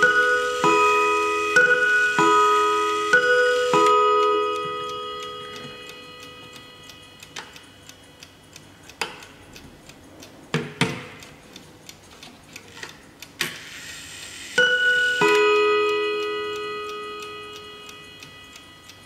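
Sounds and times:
clock chime bars ringing: 0:00.0 - 0:08.8, 0:14.4 - 0:19.0
clock movement clicks: 0:00.0 - 0:19.0
mantel clock ticking: 0:00.0 - 0:19.0.

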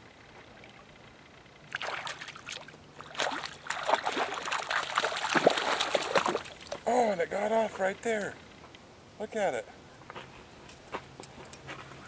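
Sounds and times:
fish splashing in water: 0:01.7 - 0:06.9.

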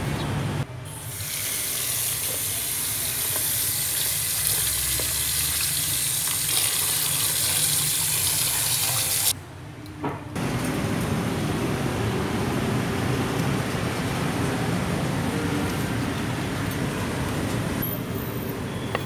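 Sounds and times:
tap water running into basin: 0:01.2 - 0:09.3.

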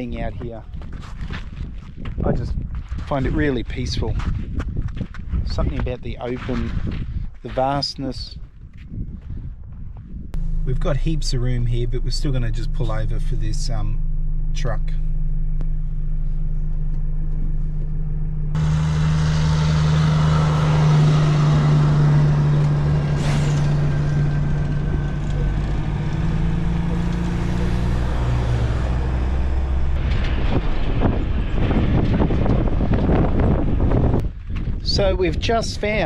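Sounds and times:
wind buffeting microphone: 0:00.0 - 0:10.9, 0:30.0 - 0:36.0
heavy diesel engine drone: 0:10.4 - 0:34.2.

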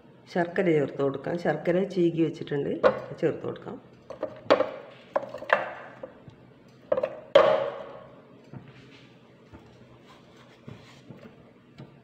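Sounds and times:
wooden bowl knocking ceramic bowl: 0:06.9 - 0:08.0.

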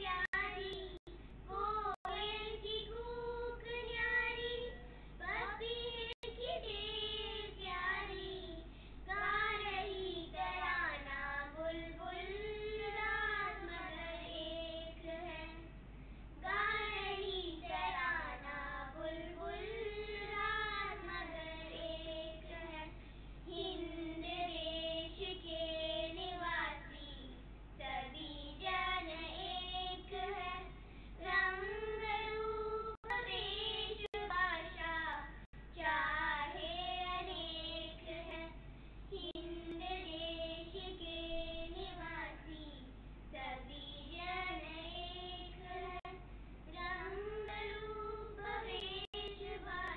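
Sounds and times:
girls singing together: 0:00.0 - 0:15.8, 0:16.4 - 0:42.8, 0:43.4 - 0:49.9.

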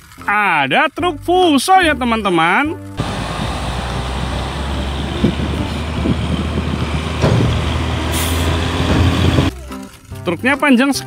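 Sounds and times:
diesel trucks rumbling past: 0:02.9 - 0:09.5.

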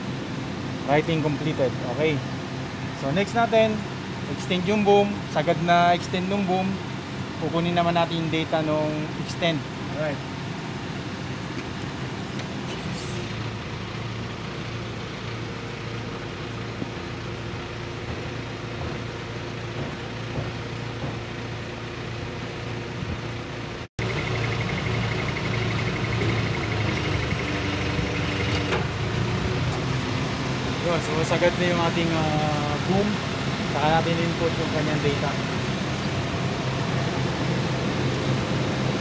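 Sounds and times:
engine and hydraulic pump hum: 0:00.0 - 0:39.0.

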